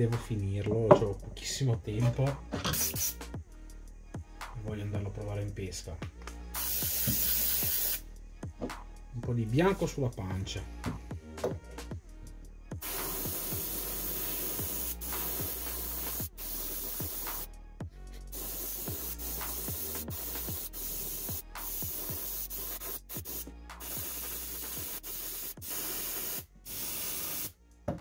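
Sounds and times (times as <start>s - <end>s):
airbrush hissing: 2.7s - 3.3s, 6.5s - 8.0s, 12.8s - 17.5s, 18.1s - 27.6s.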